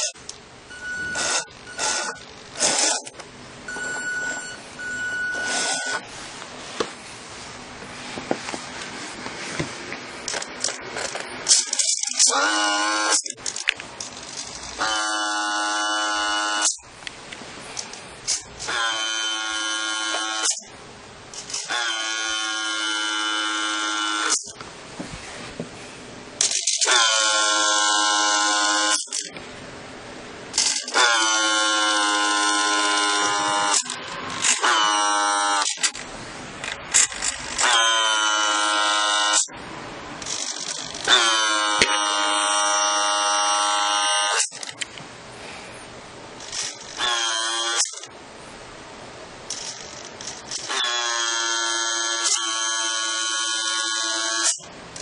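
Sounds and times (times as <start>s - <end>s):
small electric motor whining: 0.0s - 3.2s, 3.8s - 6.1s, 10.3s - 16.8s, 18.3s - 20.6s, 21.4s - 24.6s, 26.4s - 29.3s, 30.6s - 36.0s, 37.0s - 39.6s, 40.2s - 44.6s, 46.4s - 48.1s, 49.5s - 55.0s.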